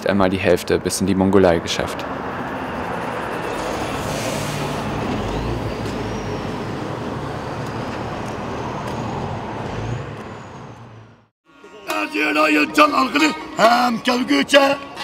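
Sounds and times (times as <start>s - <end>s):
expressway traffic: 0.0s - 15.0s
heavy truck rolling past: 2.3s - 11.3s.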